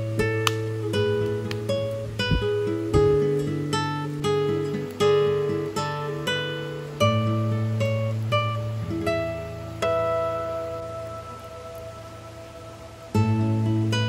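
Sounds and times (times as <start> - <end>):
plucked acoustic guitar: 0.0 - 14.0.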